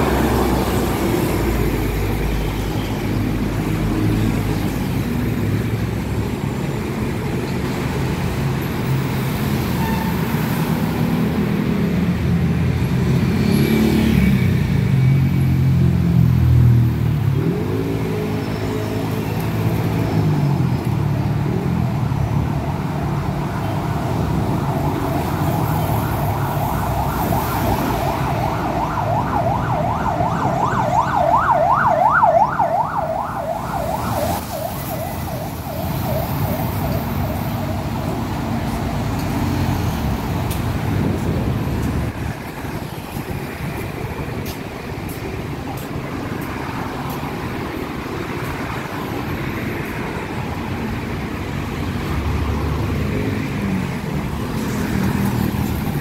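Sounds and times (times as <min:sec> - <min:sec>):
road traffic passing: 0:00.0 - 0:56.0
emergency siren yelping: 0:23.0 - 0:37.8.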